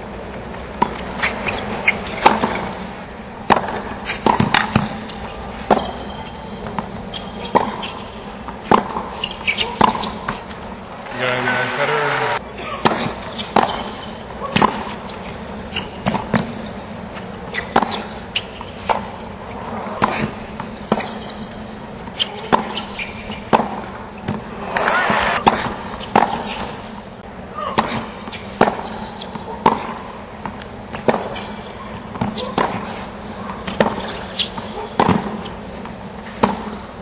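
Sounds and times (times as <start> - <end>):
tennis ball struck by rackets: 1.8 - 2.8, 3.4 - 6.0, 6.6 - 11.9, 12.8 - 15.2, 17.6 - 19.1, 20.0 - 21.2, 22.1 - 26.8, 27.7 - 33.0, 33.6 - 35.5, 36.3 - 36.8
crowd noise: 9.1 - 13.4.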